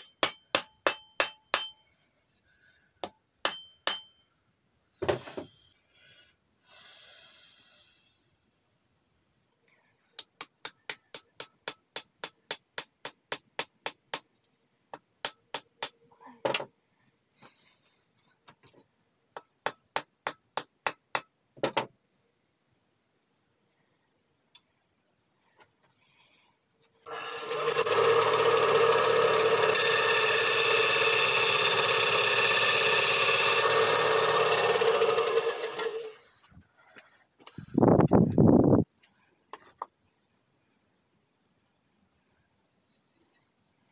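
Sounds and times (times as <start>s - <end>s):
hammer tapping on steel: 0.0s - 1.8s, 3.0s - 4.2s, 10.2s - 14.3s, 14.9s - 16.1s, 19.4s - 21.4s
bandsaw cutting wood: 27.0s - 36.5s.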